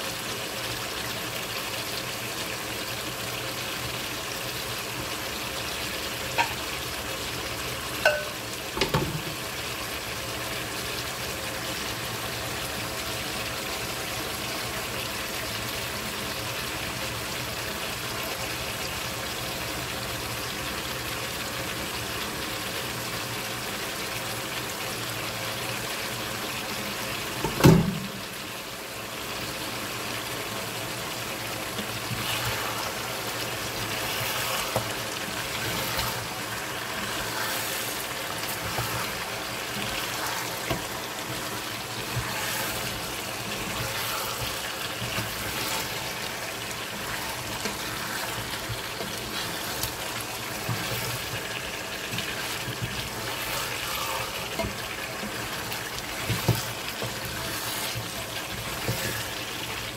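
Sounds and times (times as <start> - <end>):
meat sizzling in a pot: 0.0 - 59.9
wooden spoon scraping: 31.7 - 59.9.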